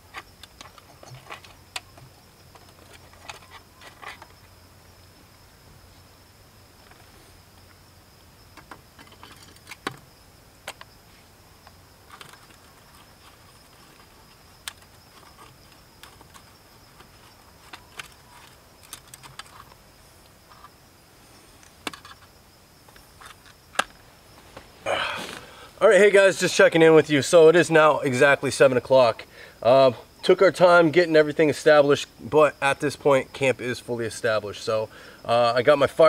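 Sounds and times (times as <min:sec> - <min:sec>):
high-pitched insect trill: 0:00.0 - 0:36.0.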